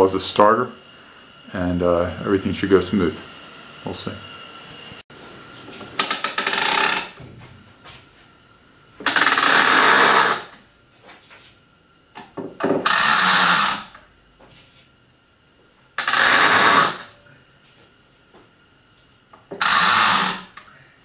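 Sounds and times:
rope ratchet pulley buzzing: 0:06.0 - 0:07.2, 0:09.0 - 0:10.6, 0:12.7 - 0:14.0, 0:16.0 - 0:17.1, 0:19.4 - 0:20.6.

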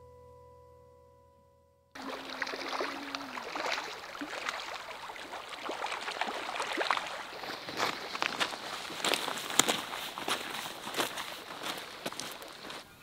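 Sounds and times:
music: 0:00.0 - 0:02.0
river rushing over gravel: 0:02.0 - 0:12.8.

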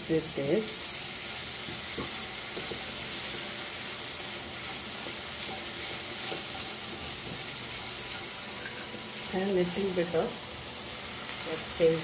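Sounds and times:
onions sizzling in oil: 0:00.0 - 0:12.0
spatula scraping pan: 0:04.5 - 0:08.9.

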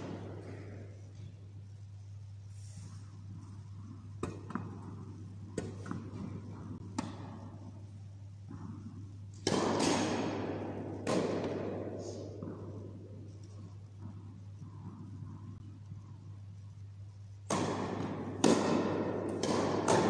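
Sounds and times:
loud echoing impacts: 0:00.0 - 0:01.4, 0:03.4 - 0:15.8, 0:17.4 - 0:20.0
tennis balls bouncing and struck: 0:00.0 - 0:01.4, 0:03.2 - 0:15.8, 0:17.4 - 0:20.0
steady low hum: 0:00.0 - 0:20.0.

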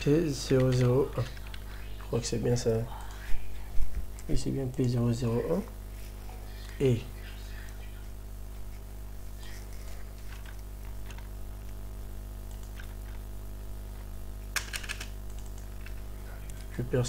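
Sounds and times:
low electrical hum: 0:00.0 - 0:17.0
keyboard keystrokes: 0:14.5 - 0:16.0.

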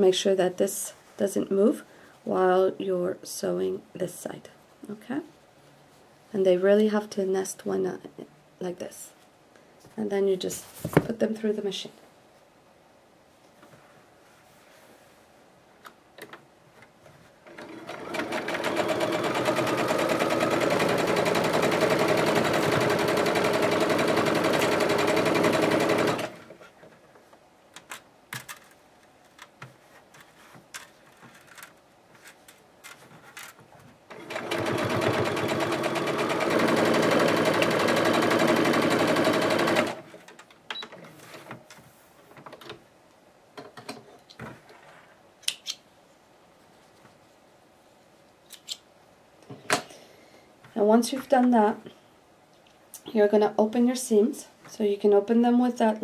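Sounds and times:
sewing machine stitching: 0:17.4 - 0:26.6, 0:34.1 - 0:40.3.

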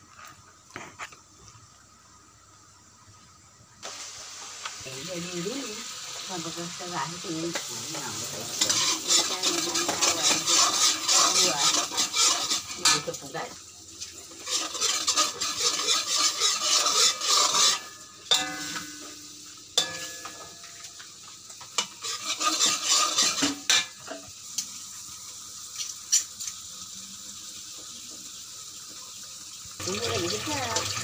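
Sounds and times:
paste sizzling: 0:03.8 - 0:26.6, 0:29.8 - 0:31.0
metal spatula scraping wok: 0:06.4 - 0:21.0, 0:21.6 - 0:24.3.

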